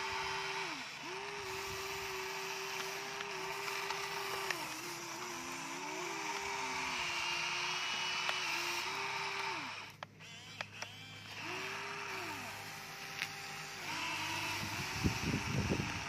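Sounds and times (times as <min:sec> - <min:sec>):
small electric motors whining: 0:00.0 - 0:16.0
clicks: 0:02.7 - 0:04.9, 0:09.4 - 0:11.5.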